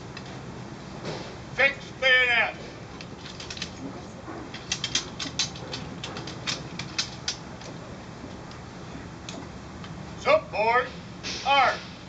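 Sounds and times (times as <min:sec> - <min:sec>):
metal bayonets clicking: 0:03.0 - 0:03.8, 0:04.5 - 0:07.8.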